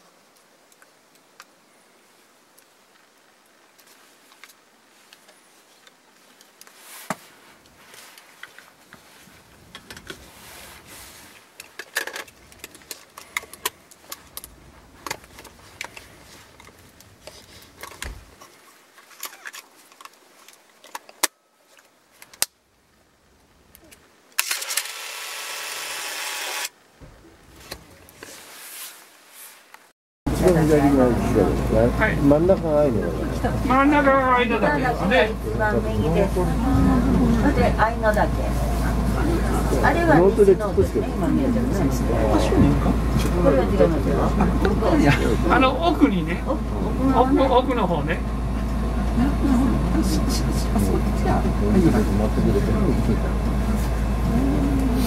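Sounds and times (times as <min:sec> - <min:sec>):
camera bag rustling: 0:15.0 - 0:22.4.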